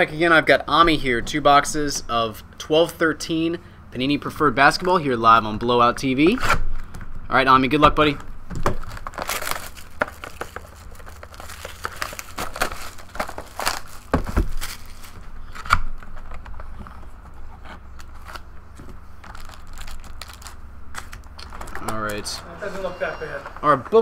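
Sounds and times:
plastic shrink wrap crinkling: 8.5s - 16.8s, 18.0s - 22.4s.

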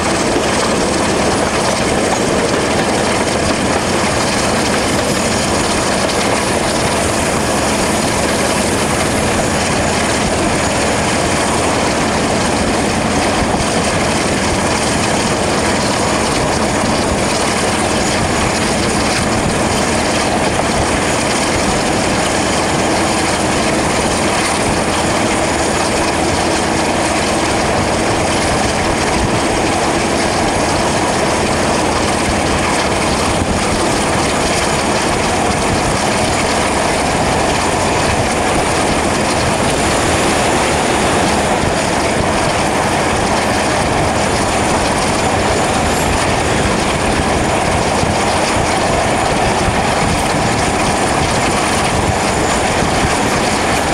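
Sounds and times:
diesel locomotive engine: 0.0s - 53.9s
wheels on the track: 0.0s - 53.9s
wind rushing: 36.8s - 53.5s.

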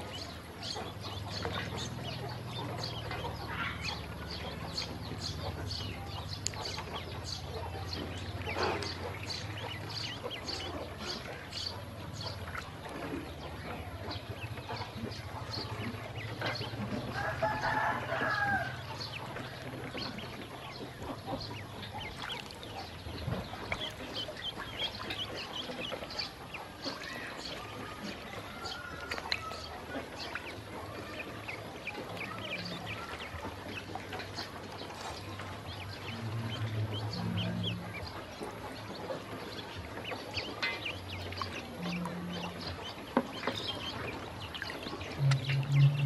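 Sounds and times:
ducklings peeping: 0.0s - 46.0s
low steady hum: 29.2s - 46.0s.

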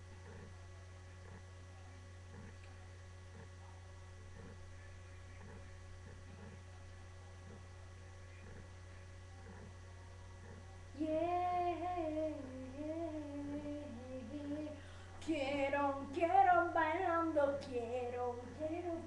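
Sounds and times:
low electrical hum: 0.0s - 19.0s
girl singing: 11.0s - 19.0s.

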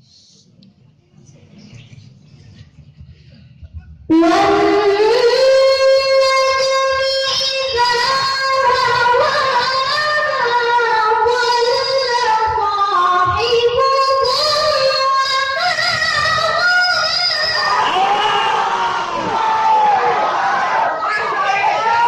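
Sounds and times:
child chanting over microphone: 4.1s - 17.8s.

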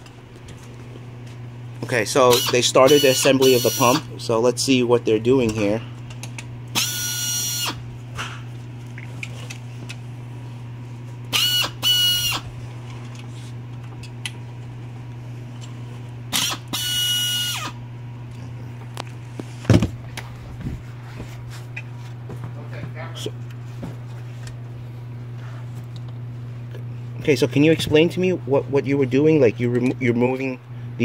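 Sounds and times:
steady low hum: 0.0s - 31.0s
pneumatic screwdriver whining: 2.3s - 4.0s, 6.7s - 7.8s, 11.3s - 12.5s, 16.3s - 17.8s.

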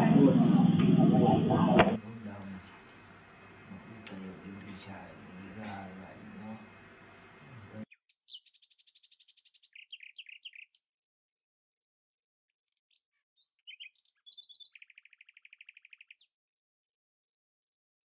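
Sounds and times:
songbird trilling and chirping: 7.9s - 10.8s, 12.9s - 16.3s.

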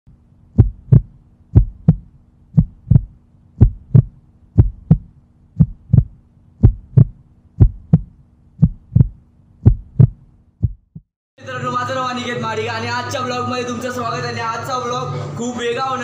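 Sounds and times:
faint low hum: 0.1s - 10.8s
heartbeat thumps: 0.4s - 11.1s.

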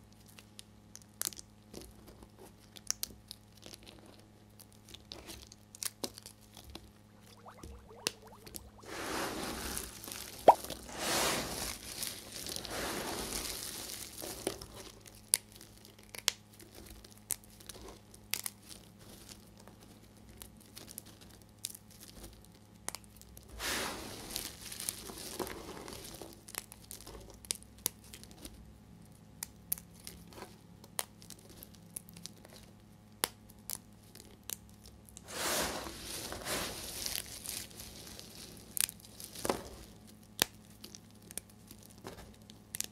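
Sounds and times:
hands crushing soap flakes: 35.9s - 42.9s.

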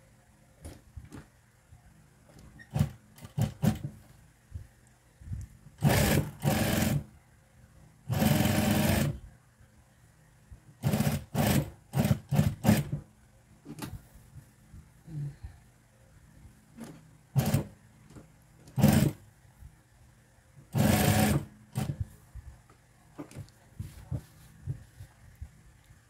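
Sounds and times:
sewing machine stitching: 2.6s - 3.9s, 5.8s - 7.1s, 8.1s - 9.2s, 10.8s - 13.0s, 16.8s - 17.8s, 18.7s - 19.2s, 20.7s - 22.0s.

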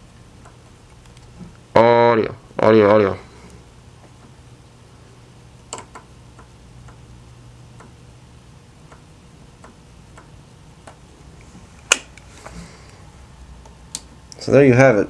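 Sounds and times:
low steady hum: 0.0s - 15.0s
radio controls clicking: 0.4s - 1.6s.

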